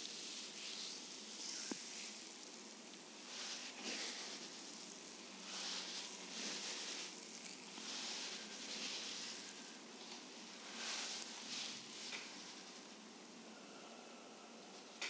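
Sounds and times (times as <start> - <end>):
oiled hands swishing on skin: 3.3 - 12.6.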